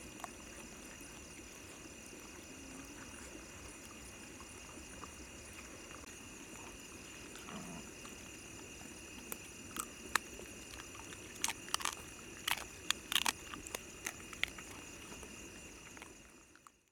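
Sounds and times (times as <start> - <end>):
sharp crunches and clicks: 9.2 - 16.9.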